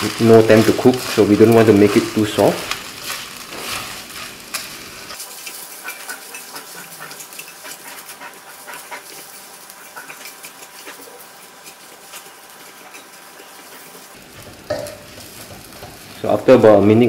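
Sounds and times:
noodles sizzling in wok: 0:00.0 - 0:17.0
spatula tapping and scraping pan: 0:14.3 - 0:16.1.

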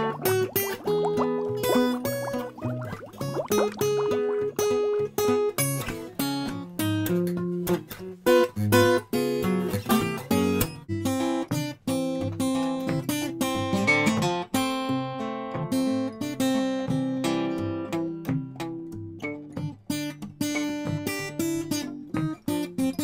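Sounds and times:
acoustic guitar music: 0:00.0 - 0:23.0.

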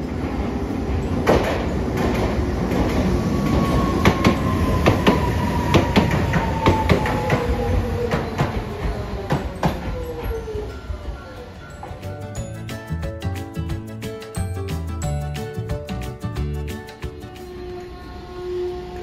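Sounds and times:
tram wheels clicking over rail joints: 0:00.0 - 0:14.4
tram rumble: 0:00.0 - 0:19.0
faint braking whine: 0:17.1 - 0:19.0.

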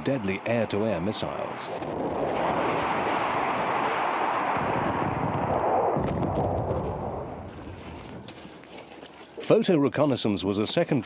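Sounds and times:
missile strike roar: 0:01.4 - 0:07.5.

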